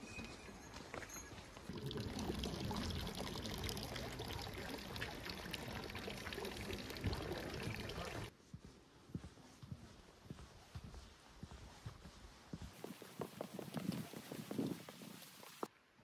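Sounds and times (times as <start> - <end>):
water splashing into stone basin: 1.7 - 8.3.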